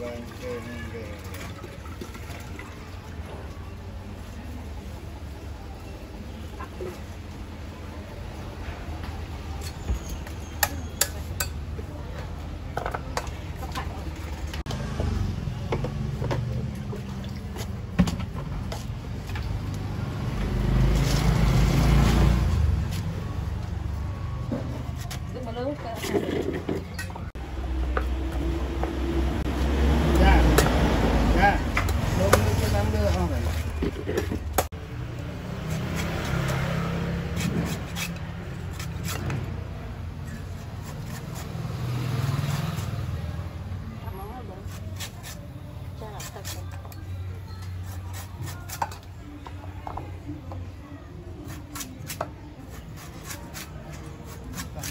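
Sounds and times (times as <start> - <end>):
cleaver chopping coconut husk: 30.0 - 33.2, 35.5 - 39.6.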